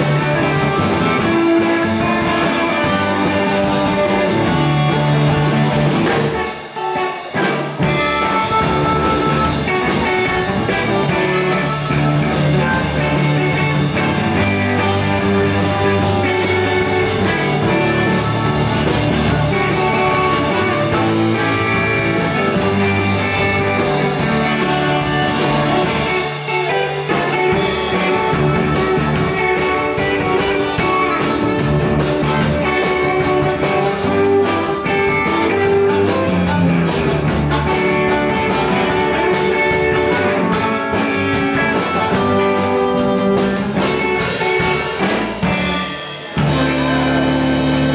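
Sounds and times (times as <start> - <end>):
electric blues band playing: 0.0 - 47.9
amplified harmonica: 7.8 - 40.8.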